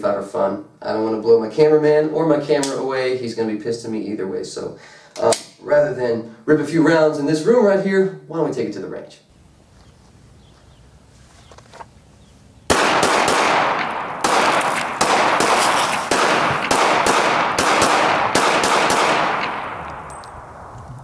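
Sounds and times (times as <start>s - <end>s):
handgun shots echoing: 12.7s - 20.8s.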